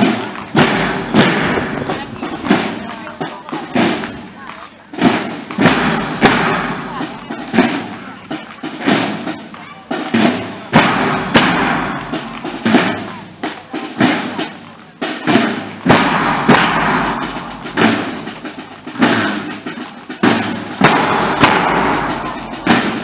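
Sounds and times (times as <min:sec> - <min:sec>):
bass drum strokes: 0:00.0 - 0:03.0, 0:05.0 - 0:07.9, 0:10.1 - 0:14.4, 0:15.3 - 0:23.0
side drums playing: 0:00.0 - 0:23.0.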